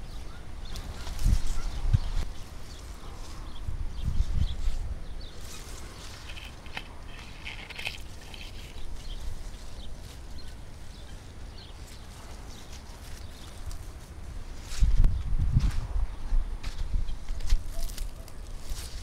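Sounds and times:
wind on microphone: 0.0s - 9.5s, 14.7s - 18.0s
leaves rustling: 0.0s - 16.0s, 16.6s - 19.0s.

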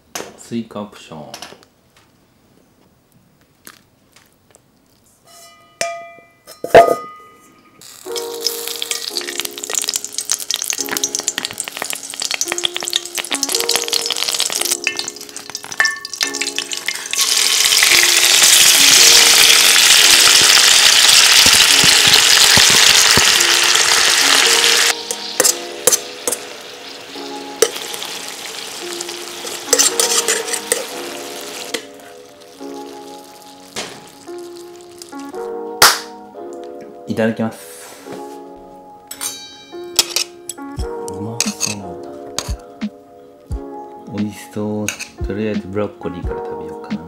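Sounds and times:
background music: 5.3s - 47.0s
oil sizzling in a wok: 7.8s - 36.0s.

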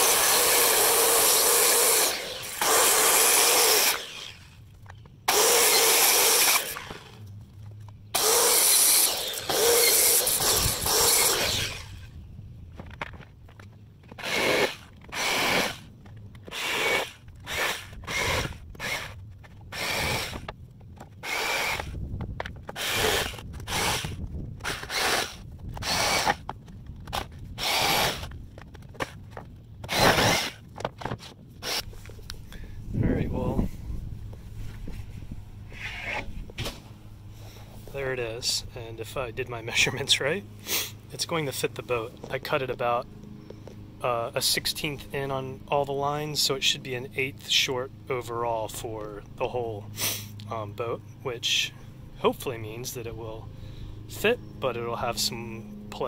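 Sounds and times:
jigsaw cutting in bursts: 0.0s - 4.5s, 5.3s - 7.2s, 8.1s - 12.0s, 14.2s - 15.9s, 16.5s - 20.5s, 21.2s - 21.9s, 22.7s - 26.4s, 27.6s - 28.3s, 29.8s - 30.6s, 31.6s - 31.8s
circular saw cutting plywood: 0.0s - 4.6s, 5.3s - 7.2s, 8.1s - 12.1s, 14.1s - 20.6s, 21.2s - 22.0s, 22.7s - 26.5s, 27.1s - 28.3s, 29.8s - 30.6s, 35.7s - 36.4s.

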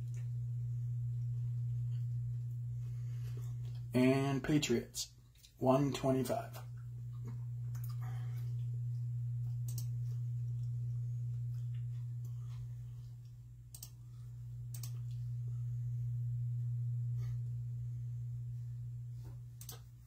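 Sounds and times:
steady low hum: 0.0s - 20.0s
faint clicks: 6.6s - 10.8s, 13.2s - 14.0s, 14.7s - 15.2s.

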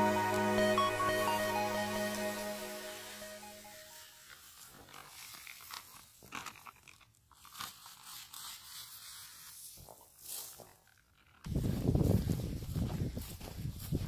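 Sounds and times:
foil bag crinkling: 4.2s - 11.4s
footsteps crunching on grass: 9.6s - 10.8s, 11.5s - 14.0s.

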